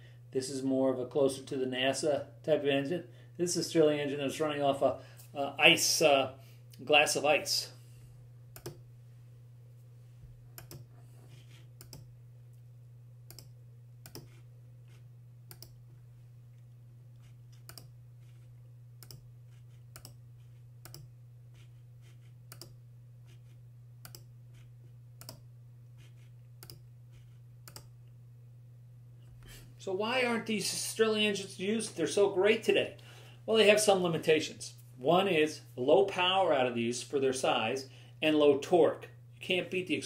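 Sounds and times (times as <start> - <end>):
low electrical hum: 0.0 - 40.0
faint computer mouse clicks: 15.5 - 15.8, 24.0 - 24.3, 26.6 - 26.8, 27.7 - 27.9.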